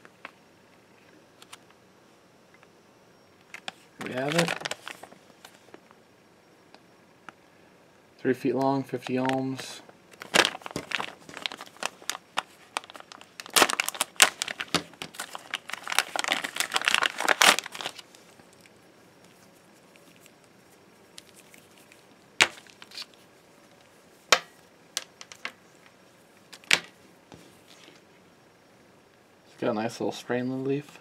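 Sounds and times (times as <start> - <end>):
plastic bag crinkling: 3.5 - 5.2, 10.2 - 23.3.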